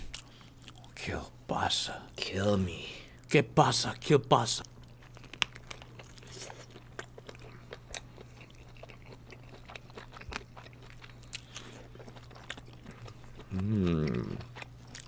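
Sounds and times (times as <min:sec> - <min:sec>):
steady low hum: 0:00.0 - 0:15.0
chewing mouth clicks and smacks: 0:04.8 - 0:15.0.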